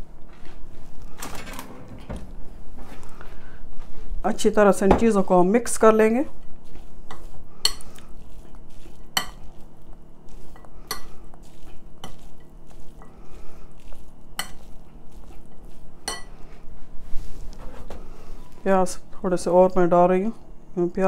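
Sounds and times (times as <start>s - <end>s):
metal spoon stirring food in bowl: 5.7s - 16.4s.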